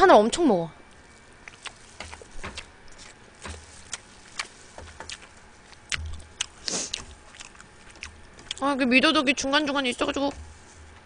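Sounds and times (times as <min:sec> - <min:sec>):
wet chewing mouth clicks: 0:01.4 - 0:08.6
soft low thumps: 0:02.0 - 0:07.2.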